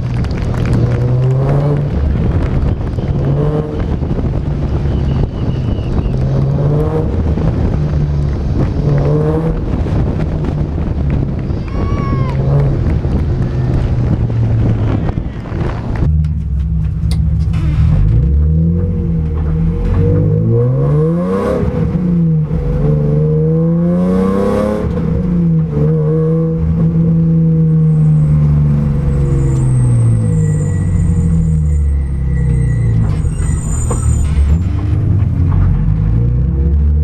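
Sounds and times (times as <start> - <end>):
car engine revving: 0.0 - 11.6, 12.2 - 37.0
wind noise on microphone: 0.0 - 25.8.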